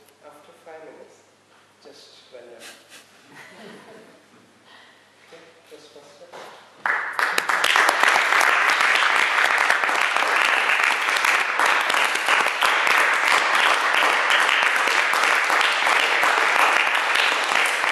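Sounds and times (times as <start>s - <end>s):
audience applauding: 6.8s - 17.9s.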